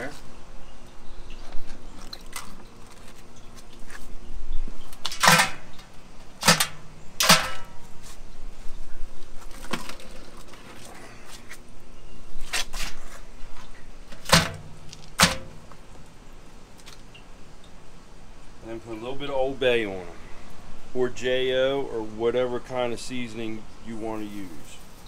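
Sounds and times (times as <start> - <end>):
crabs clattering on metal: 5.0 - 7.9, 14.1 - 15.7.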